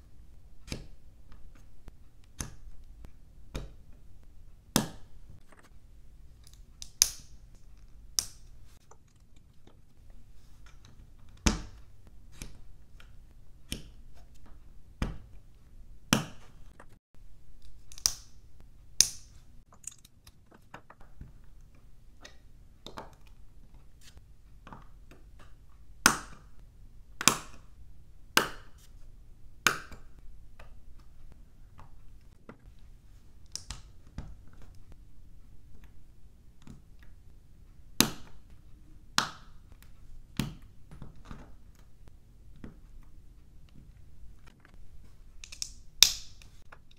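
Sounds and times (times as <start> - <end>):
plastic bricks clicking: 45.4 - 46.9.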